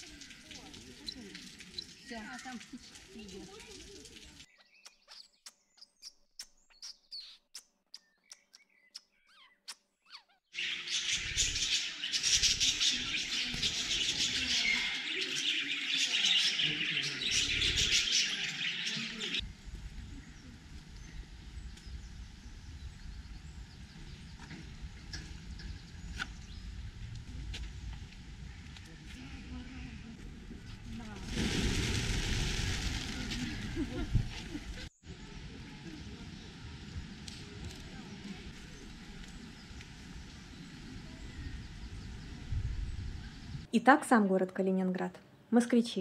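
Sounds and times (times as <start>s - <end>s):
sparse chirps and clicks: 0.0s - 10.3s
low rumbling noise: 19.4s - 43.7s.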